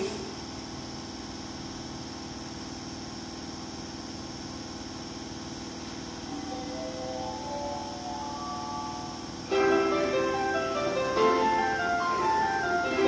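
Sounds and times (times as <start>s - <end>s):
train humming at platform: 6.0s - 13.0s
melody: 6.3s - 13.0s.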